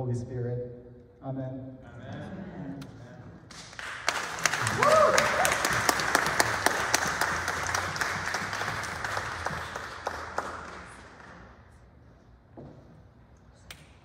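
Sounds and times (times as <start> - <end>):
congregation applauding: 3.5 - 11.8.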